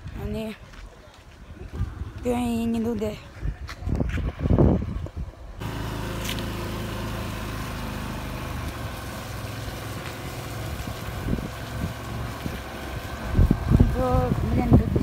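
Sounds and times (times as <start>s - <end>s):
motorbike engine running: 5.6s - 15.0s.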